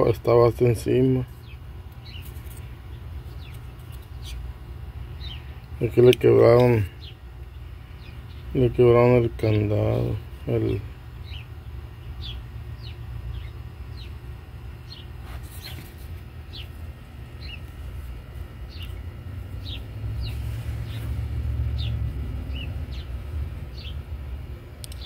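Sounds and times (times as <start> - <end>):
low steady rumble: 0.0 - 25.0
bird chirping: 1.3 - 4.5, 5.1 - 14.2, 14.8 - 17.8, 18.6 - 24.1.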